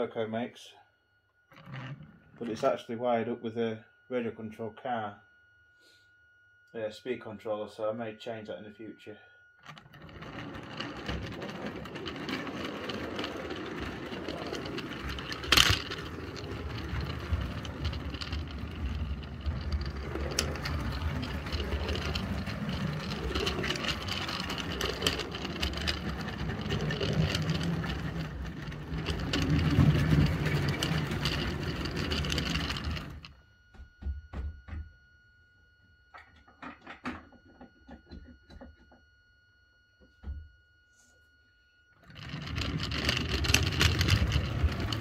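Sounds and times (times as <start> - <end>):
model locomotive motor whine: 9.6 - 34.4, 41.8 - 45.0
track clicks: 9.7 - 33.3
wagons rolling: 9.8 - 33.3, 42.1 - 45.0.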